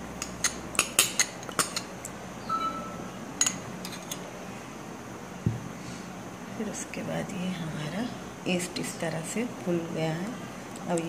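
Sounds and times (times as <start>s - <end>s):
brief ring: 2.5s - 3.0s.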